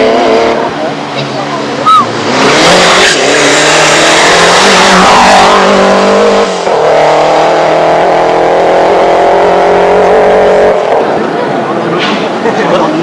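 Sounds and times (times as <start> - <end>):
car engine revving hard: 0.0 - 0.8, 1.8 - 11.2.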